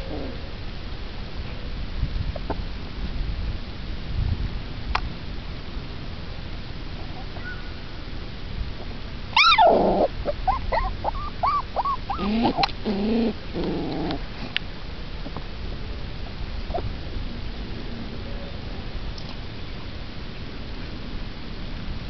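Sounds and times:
puppies whimpering and yelping: 9.4 - 14.2.

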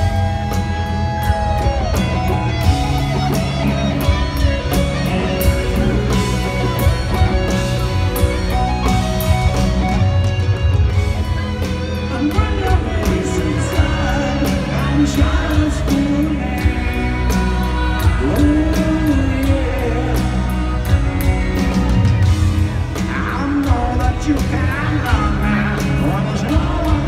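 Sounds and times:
drums: 0.0 - 27.0
electric guitar: 0.0 - 27.0
person singing: 11.6 - 21.1, 23.0 - 27.0.

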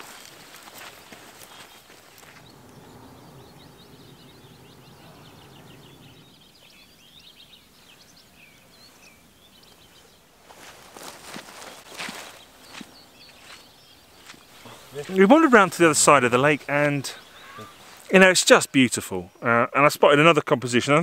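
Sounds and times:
footsteps on grass: 0.0 - 2.7, 8.8 - 15.6
small birds twittering: 0.0 - 21.0.

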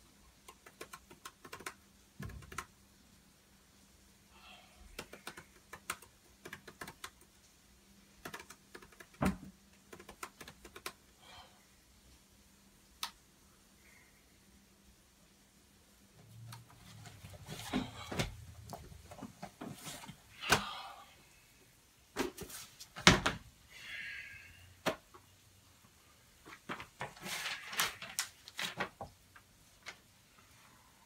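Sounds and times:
papers and book rustling: 16.6 - 20.2, 22.2 - 23.4, 26.4 - 30.1.

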